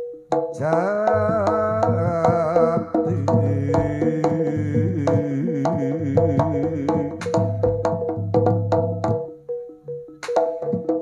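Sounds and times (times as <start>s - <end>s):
ringing percussion notes: 0.0s - 11.0s
wavering melodic line: 0.0s - 11.0s
drum pulse: 0.5s - 9.3s.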